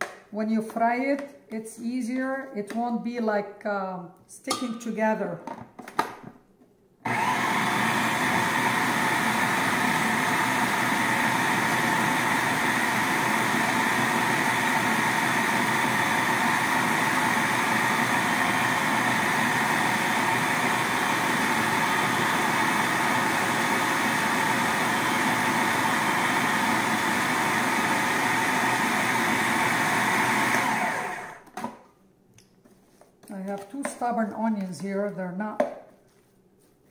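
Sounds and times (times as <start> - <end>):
food processor grinding dough: 7.1 - 31.7.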